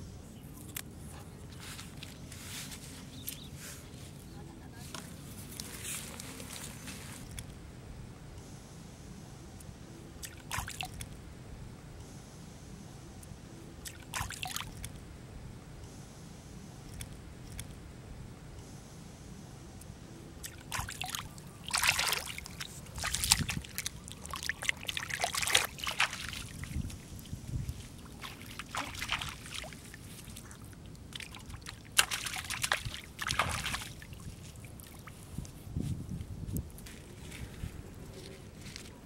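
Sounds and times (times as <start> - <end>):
water splashing and sloshing: 10.2 - 11.2, 13.8 - 15.0, 20.4 - 35.6.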